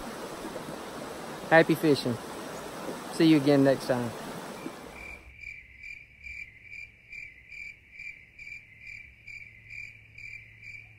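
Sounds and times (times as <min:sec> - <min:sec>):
cricket chirping: 0:04.3 - 0:10.9.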